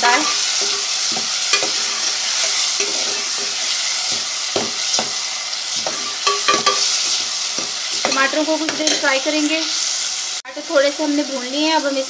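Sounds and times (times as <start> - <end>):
food sizzling in a pot: 0.0 - 12.0
metal spoon scraping and clinking: 0.2 - 5.1, 5.8 - 9.1.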